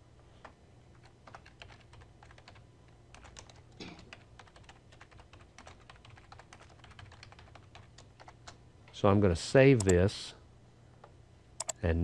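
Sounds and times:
keyboard typing clicks: 11.6 - 11.8.

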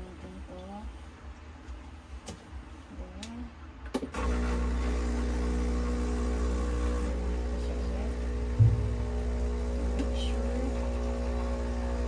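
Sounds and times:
espresso machine pump humming: 4.2 - 12.0
low knock: 8.6 - 9.4.

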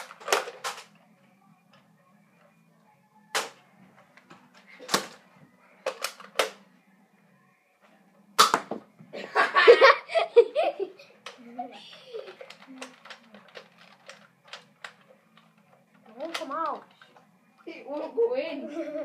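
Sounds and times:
foam-dart blaster pops: 8.4 - 8.8.

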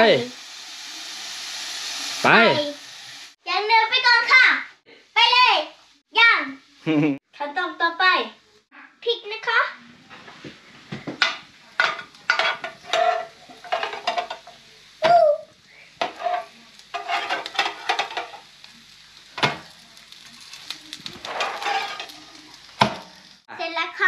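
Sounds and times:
patties sizzling: 0.0 - 8.6, 9.8 - 24.0
metal spatula scraping grill plate: 11.8 - 14.4, 16.0 - 18.4, 21.2 - 22.4.

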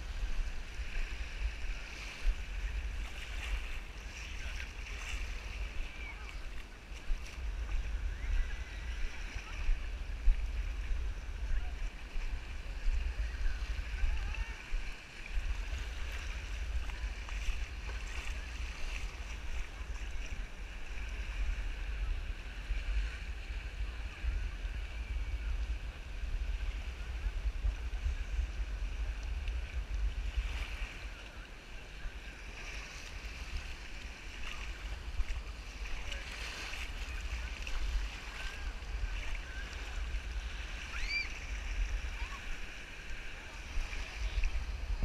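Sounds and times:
small waves lapping: 0.0 - 45.0
wind rumbling on microphone: 0.0 - 45.0.

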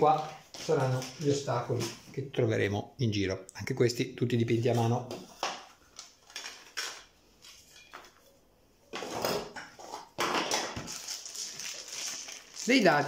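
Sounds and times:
plastic bags crinkling: 10.4 - 13.0.

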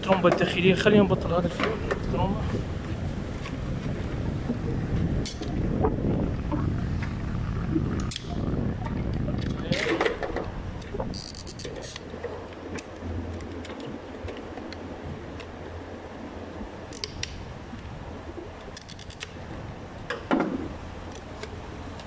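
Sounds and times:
low steady hum: 0.0 - 22.0
small clicks and scrapes: 9.4 - 14.8, 18.6 - 19.4, 21.1 - 22.0.

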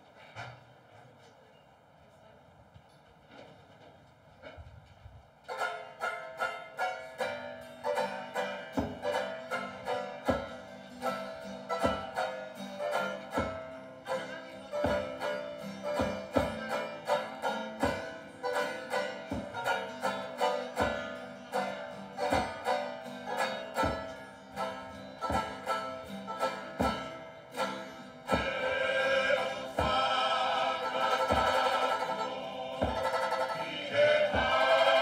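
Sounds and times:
plucked strings: 5.5 - 35.0
group of voices singing: 28.2 - 35.0
steady drum beat: 28.3 - 35.0.

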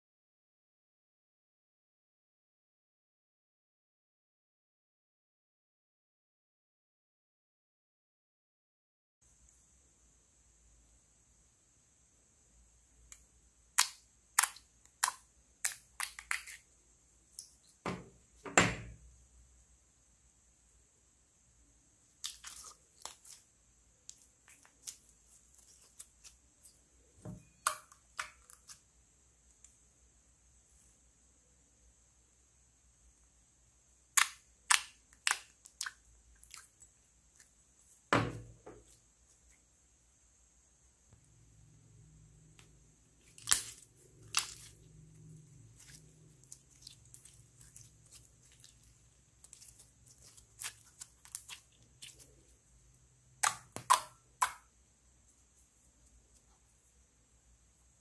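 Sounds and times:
sticky slime squelch: 13.7 - 16.7, 22.1 - 26.8, 34.1 - 37.6, 43.2 - 54.7
thud: 38.1 - 38.8.

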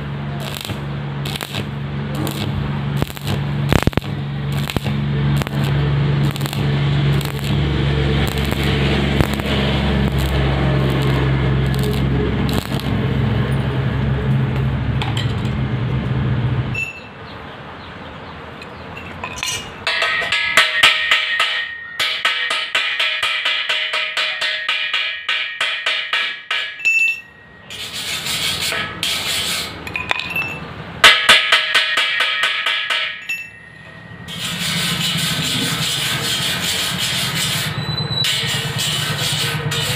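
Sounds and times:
chipping hammer tapping metal: 0.0 - 13.0, 19.3 - 27.3, 29.9 - 33.5
arc welding crackling: 0.0 - 14.9, 34.3 - 39.9.

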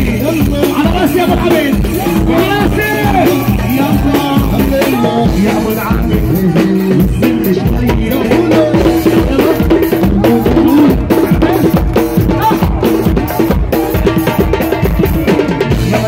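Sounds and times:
driving drum beat: 0.0 - 16.0.

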